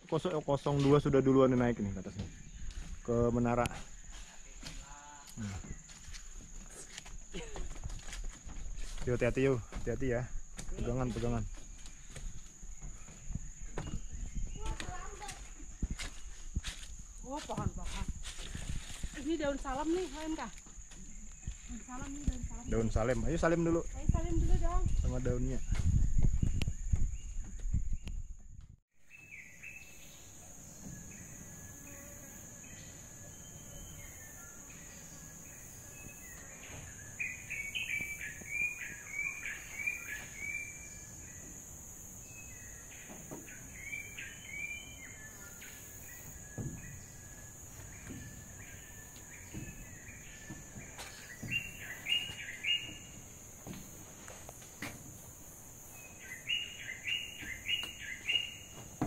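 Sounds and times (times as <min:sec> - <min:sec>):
birds chirping: 0:00.0 - 0:28.4, 0:29.0 - 0:59.0
high-pitched insect drone: 0:29.1 - 0:59.0.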